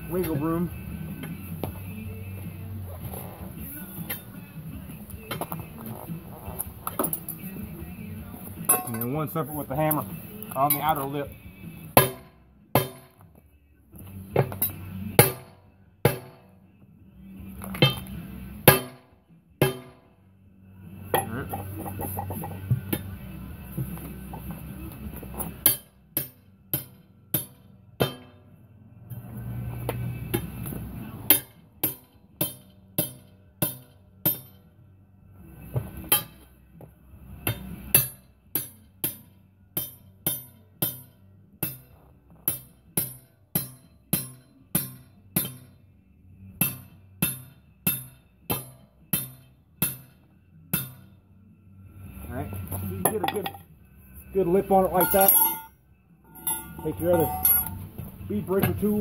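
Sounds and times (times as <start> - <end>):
hammer clanking on steel wheel: 8.7 - 9.2, 12.0 - 13.2, 17.8 - 18.1, 18.7 - 19.0, 19.6 - 20.1, 25.6 - 28.4, 54.7 - 55.7, 56.3 - 59.0.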